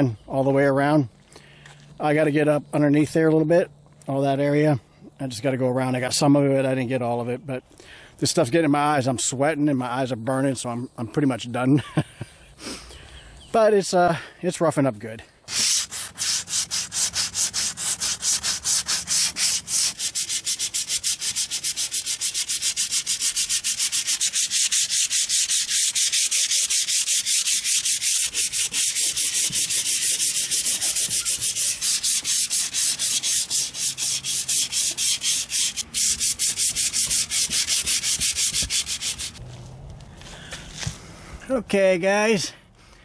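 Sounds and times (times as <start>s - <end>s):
hand sanding fiberglass: 15.5s - 39.4s.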